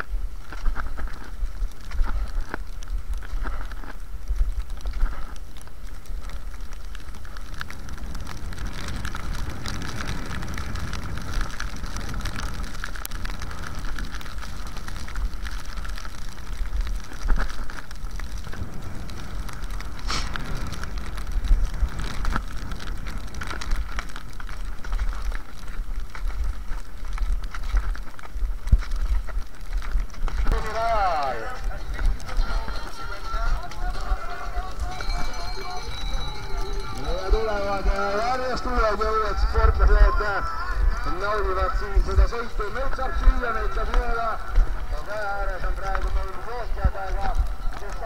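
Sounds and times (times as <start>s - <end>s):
ski poles clicking in snow: 0.0s - 48.0s
wind rumble on microphone: 0.0s - 48.0s
skis hissing on snow: 18.5s - 21.9s.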